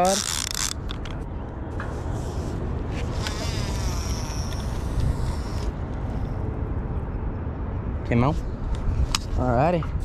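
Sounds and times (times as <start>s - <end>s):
fishing reel spool whirring: 0.0s - 0.9s, 3.0s - 5.8s.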